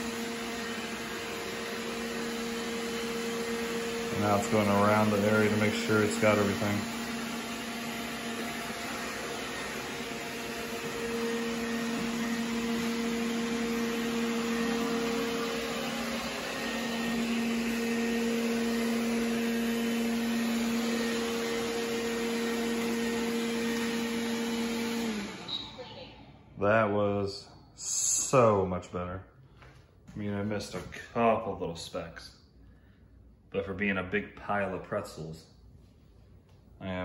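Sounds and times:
robot vacuum running: 0.0 - 26.3.

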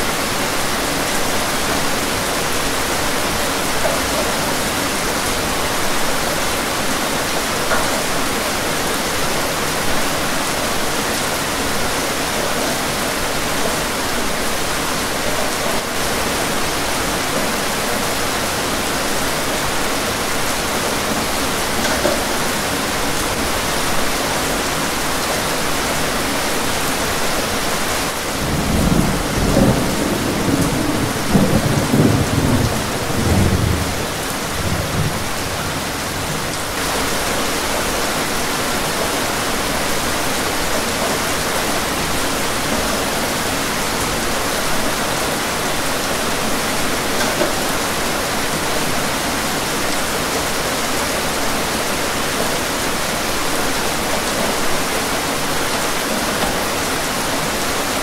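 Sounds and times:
rain on a window pane: 0.0 - 58.0
thunder rumbling: 28.3 - 36.7.

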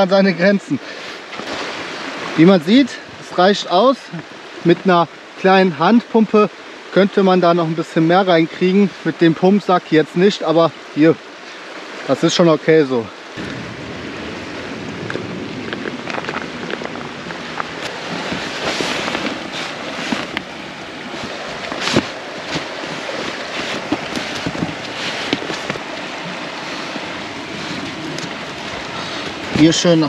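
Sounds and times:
steady rushing noise: 13.3 - 30.0
rustles and knocks from handling: 15.1 - 20.5, 21.1 - 25.8.

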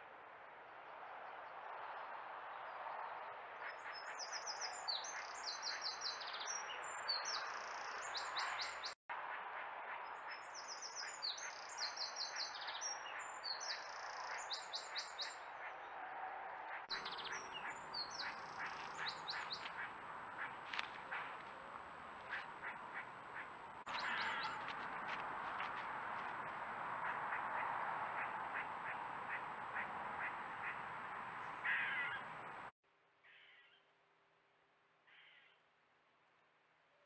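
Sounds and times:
songbird singing: 2.9 - 9.0, 10.1 - 16.0, 16.8 - 32.7
road traffic hum: 7.2 - 32.8.

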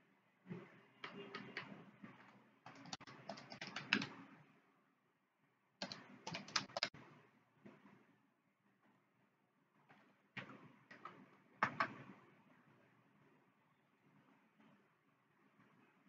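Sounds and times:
keyboard typing: 1.0 - 4.2, 5.8 - 7.0, 10.4 - 12.0.

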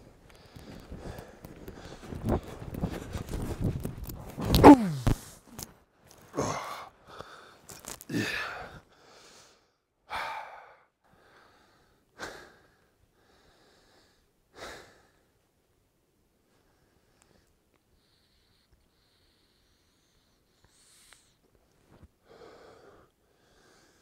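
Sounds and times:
heavy breathing: 0.0 - 3.5, 6.3 - 15.4, 22.2 - 24.0
man falling into snow: 1.9 - 5.5.

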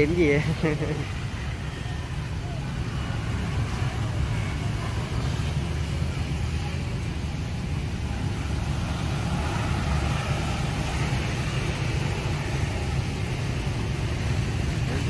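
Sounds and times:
outdoor background rumble: 0.0 - 15.0.

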